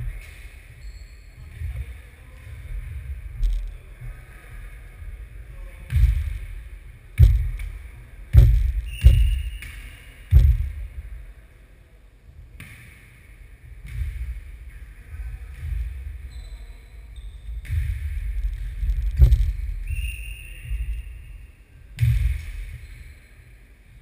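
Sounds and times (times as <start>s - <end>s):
low rumble: 17.7s - 20.0s.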